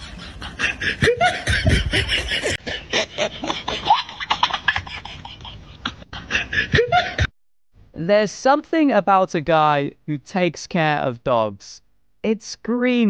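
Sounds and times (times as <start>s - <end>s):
people laughing: 0.0s - 7.3s.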